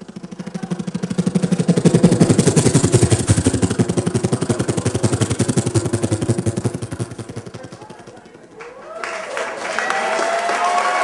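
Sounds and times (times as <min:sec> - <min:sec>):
person imitating a helicopter: 0:00.0 - 0:08.6.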